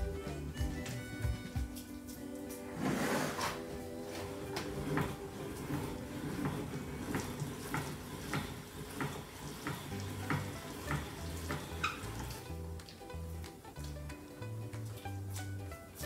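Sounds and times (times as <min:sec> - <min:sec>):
hand-cranked meat grinder grinding: 0:02.8 - 0:13.6.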